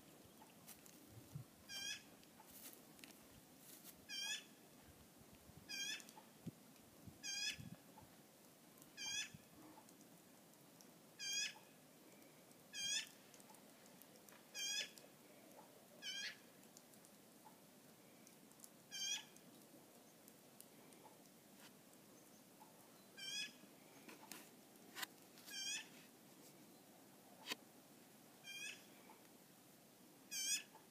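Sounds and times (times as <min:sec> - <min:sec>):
magpie squawking: 0:05.7 - 0:06.1, 0:14.6 - 0:14.9, 0:16.0 - 0:16.4, 0:18.9 - 0:19.3, 0:28.4 - 0:28.8, 0:30.3 - 0:30.7.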